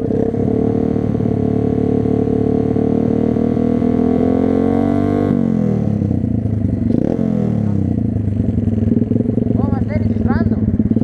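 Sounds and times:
motorbike engine idling: 5.9s - 11.0s.

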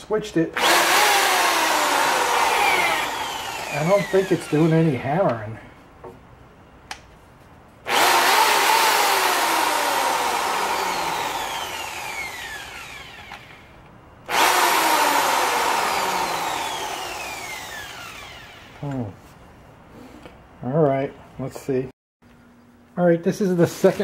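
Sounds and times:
hammer drill motor whine: 0.6s - 4.9s, 7.9s - 13.7s, 14.3s - 18.8s.

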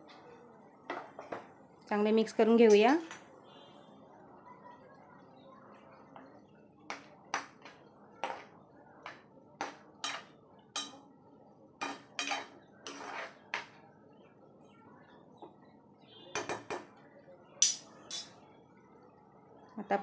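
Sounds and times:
spoon scraping frying pan: 6.9s - 11.0s, 11.8s - 13.8s.

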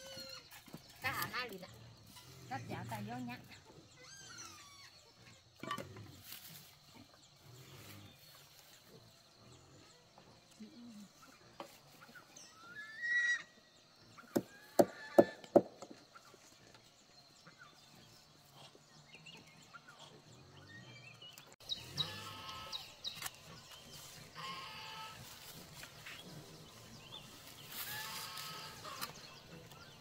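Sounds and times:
pigs squealing and grunting: 3.6s - 6.3s, 12.1s - 15.2s, 21.8s - 22.8s, 23.5s - 30.0s.

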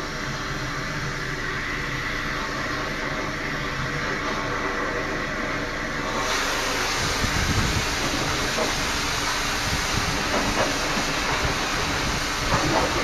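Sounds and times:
machine hum: 0.0s - 13.0s
water jetter rushing hiss: 0.0s - 13.0s.

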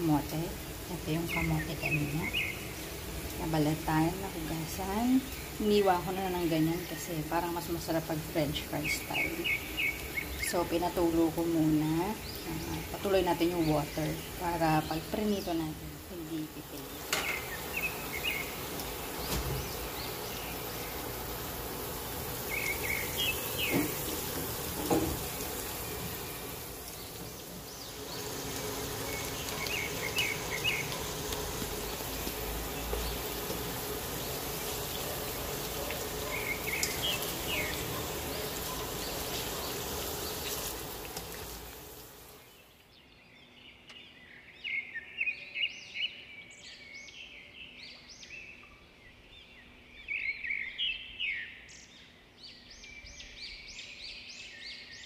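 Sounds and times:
hot oil sizzling: 0.0s - 42.6s
bird-like chirps: 22.4s - 40.8s.

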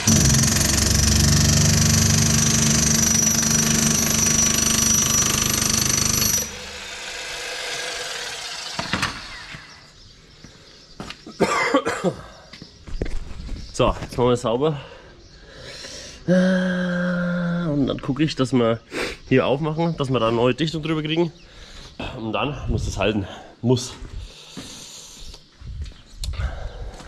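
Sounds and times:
power tool whining: 0.0s - 10.0s.

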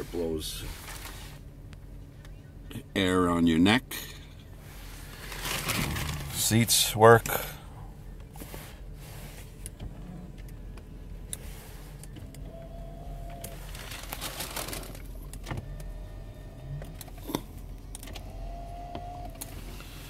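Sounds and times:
steady low hum: 0.0s - 20.0s
rustling: 0.6s - 1.5s, 4.6s - 6.8s, 13.4s - 15.1s
electric seat motor whining: 8.3s - 20.0s.

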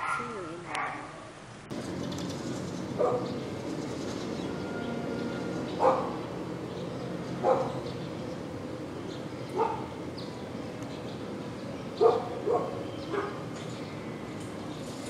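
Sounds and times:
dog barking: 0.0s - 1.3s, 3.0s - 3.4s, 5.8s - 6.2s, 7.4s - 7.8s, 9.6s - 9.9s, 12.0s - 13.4s
background hum: 0.0s - 15.0s.

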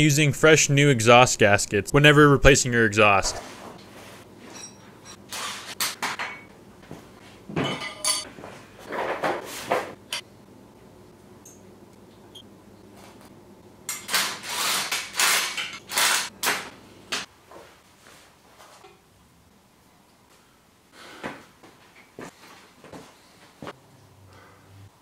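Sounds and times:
hand tools clinking on metal: 7.6s - 8.3s.

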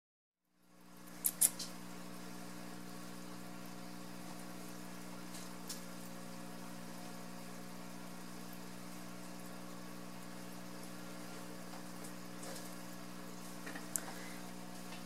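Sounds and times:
light sharp clicks: 1.2s - 1.7s.

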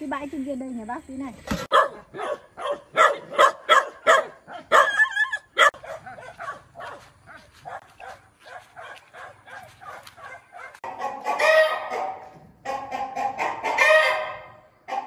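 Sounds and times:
dog barking: 1.7s - 15.0s.

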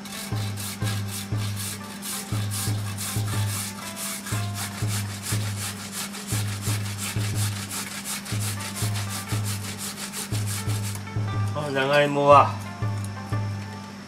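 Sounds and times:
yam rasping on metal grater: 0.0s - 11.0s.

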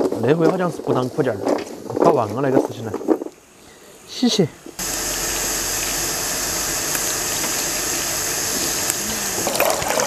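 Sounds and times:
onions rinsed in steel bowl: 4.9s - 10.0s.

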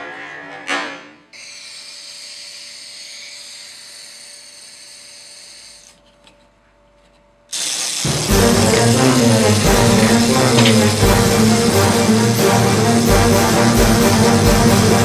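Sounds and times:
small mechanism whirring: 1.4s - 6.5s, 7.5s - 14.4s
loud music: 8.1s - 15.0s.

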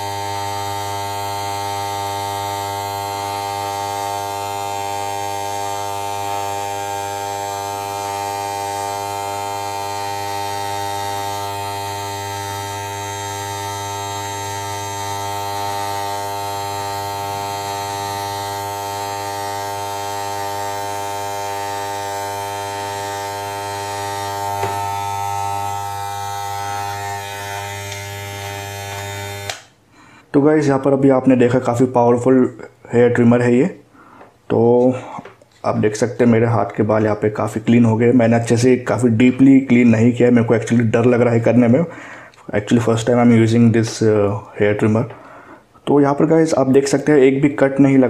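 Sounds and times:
hair clipper buzzing: 0.0s - 29.8s.

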